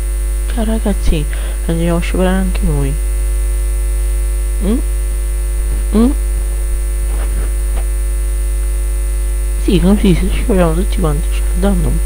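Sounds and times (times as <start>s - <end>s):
low electrical mains hum: 0.0s - 12.0s.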